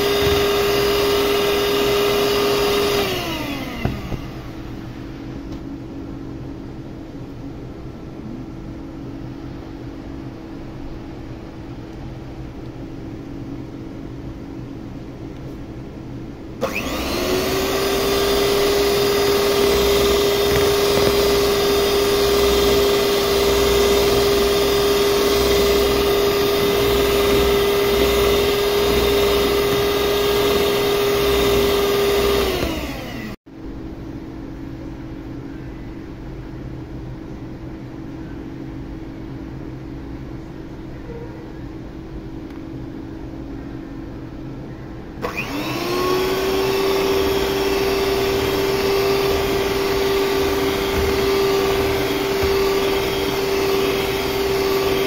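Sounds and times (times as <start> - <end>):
electric hand mixer whirring: 0.0 - 4.9, 16.6 - 33.4, 45.2 - 55.0.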